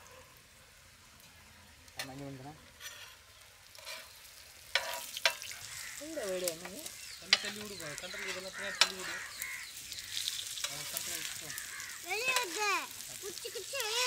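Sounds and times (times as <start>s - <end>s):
food sizzling in a pan: 0.0s - 14.0s
utensil stirring and scraping: 2.8s - 6.0s.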